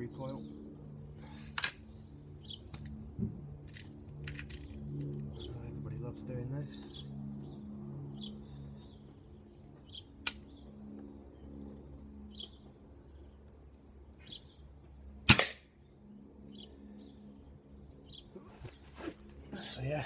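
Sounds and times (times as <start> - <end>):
birds chirping: 0.0 - 20.0
air rifle shot: 15.3 - 15.7.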